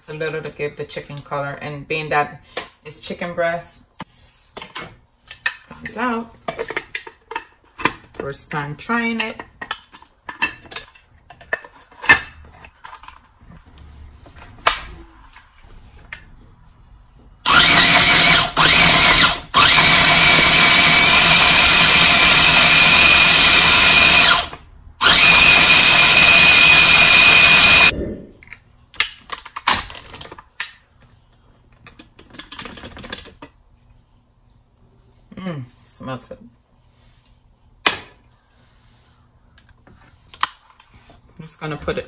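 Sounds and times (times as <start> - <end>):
food processor running: 17.5 - 27.9.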